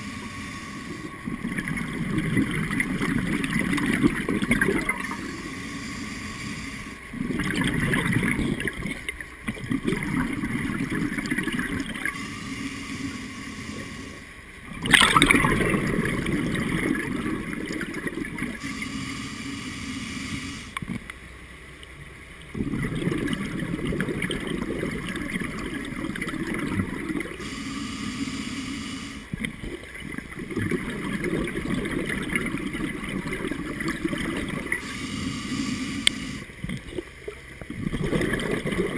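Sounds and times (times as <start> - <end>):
hissing regulator inhalations: 0.0 - 1.3, 5.0 - 7.1, 12.0 - 14.4, 18.6 - 20.8, 27.2 - 29.4, 34.6 - 36.5
gurgling bubbles exhaling: 0.9 - 5.3, 7.1 - 12.2, 14.7 - 18.8, 22.5 - 27.5, 29.3 - 35.0, 35.7 - 38.9.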